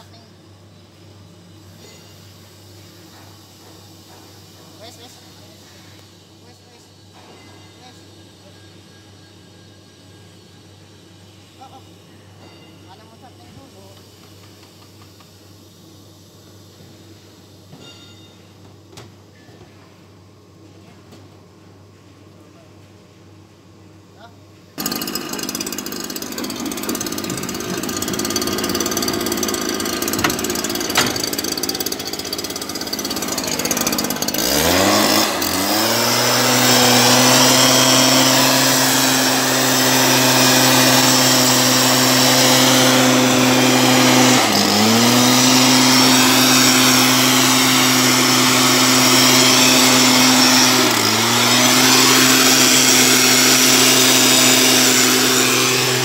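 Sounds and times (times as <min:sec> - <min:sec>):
mist blower engine revving: 0:24.8 - 0:56.0.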